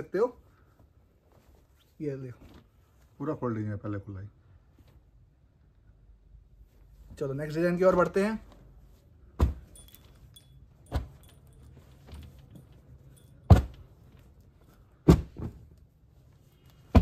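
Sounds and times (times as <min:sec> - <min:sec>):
cloth rustling: 0:00.0 - 0:03.5, 0:06.4 - 0:17.0
fabric bundles thumping down: 0:09.2 - 0:12.8, 0:13.4 - 0:15.8, 0:16.8 - 0:17.0.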